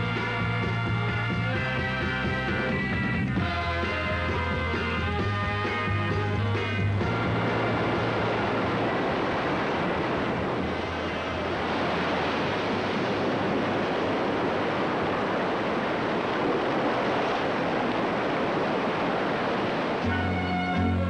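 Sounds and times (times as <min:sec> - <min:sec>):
ocean surf breaking against rocks: 0:07.4 - 0:21.0.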